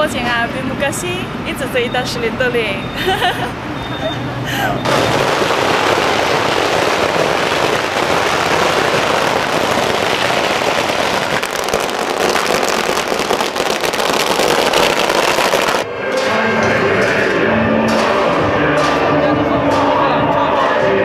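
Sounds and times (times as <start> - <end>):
firecrackers popping: 4.8 - 15.9.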